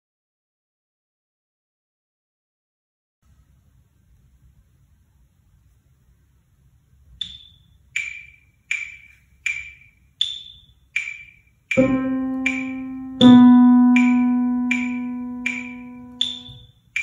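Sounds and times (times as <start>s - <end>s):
metronome clicking: 7.2s - 17.0s
low piano notes: 11.7s - 16.6s.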